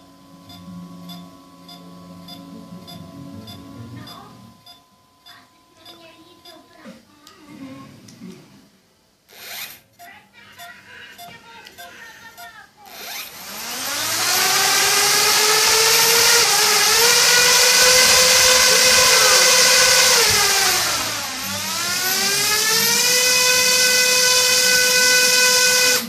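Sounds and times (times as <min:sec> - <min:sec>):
drone motors high whine: 0:00.0 - 0:04.8, 0:12.9 - 0:26.0.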